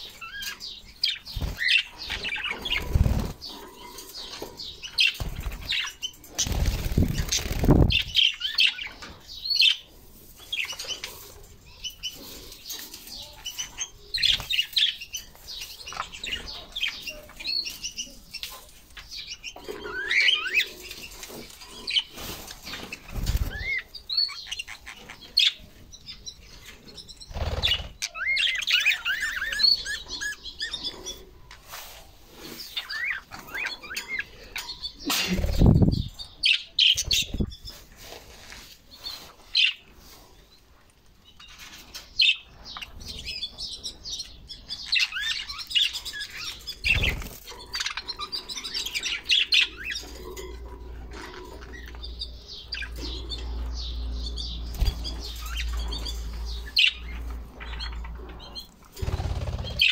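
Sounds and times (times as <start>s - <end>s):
wings flapping: 1.3s - 3.5s, 5.2s - 8.2s, 59.0s - 59.9s
budgerigars chirping: 42.2s - 50.5s, 51.1s - 59.9s.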